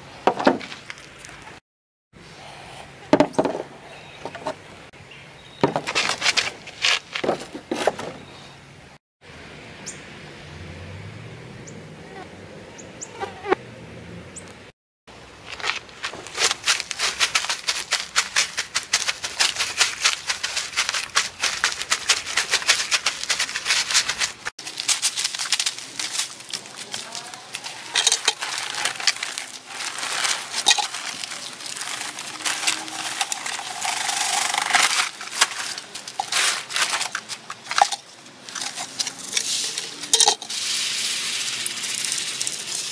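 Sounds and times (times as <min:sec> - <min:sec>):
dry grass crackling underfoot: 0:15.4 - 0:42.9.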